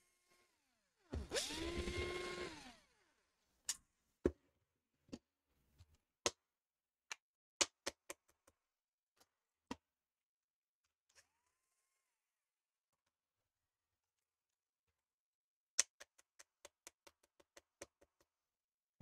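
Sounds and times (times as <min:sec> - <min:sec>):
electric screwdriver spinning: 0:01.2 - 0:03.0.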